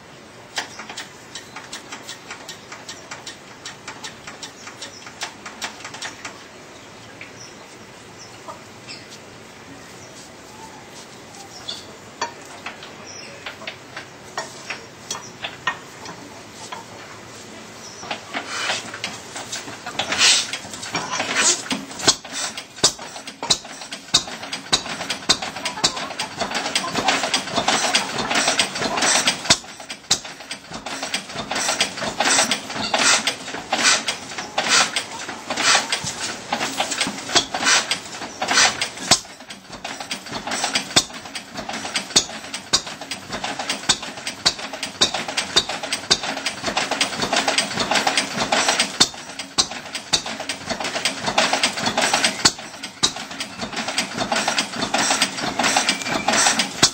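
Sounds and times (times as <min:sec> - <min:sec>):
mechanical clatter: 0:00.5 - 0:06.8, 0:17.9 - 0:56.9
stationary engine running: 0:18.0 - 0:56.9.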